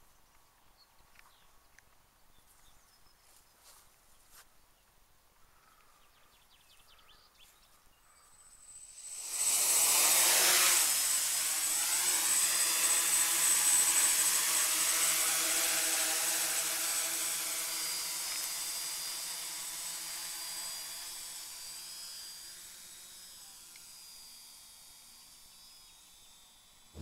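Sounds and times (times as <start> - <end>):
quadcopter motors humming: 8.2 - 27.0.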